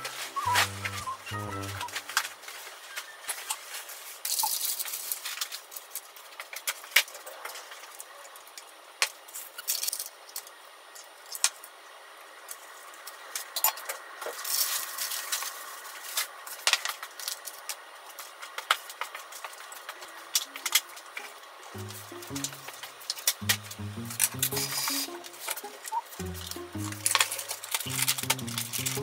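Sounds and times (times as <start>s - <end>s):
food rustling: 26.9s - 29.0s.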